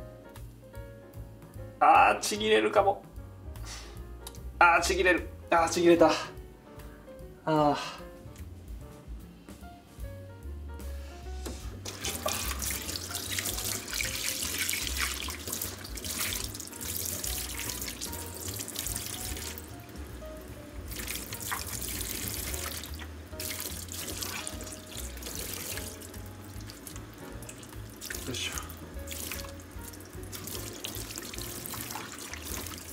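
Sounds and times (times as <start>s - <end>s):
quiet background music: 0.0s - 32.9s
tap water running into sink: 11.4s - 32.9s.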